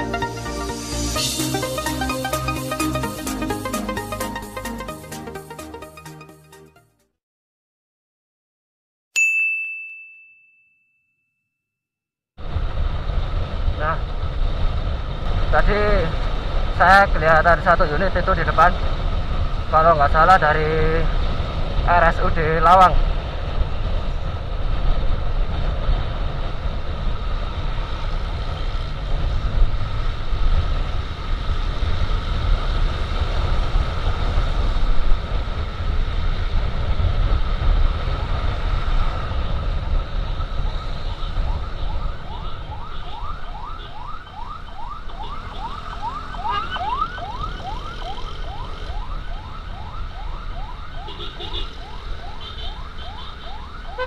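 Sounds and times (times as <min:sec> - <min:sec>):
emergency siren: 0:00.0 - 0:06.4, 0:37.1 - 0:54.0
wind rush and road noise: 0:12.4 - 0:54.0.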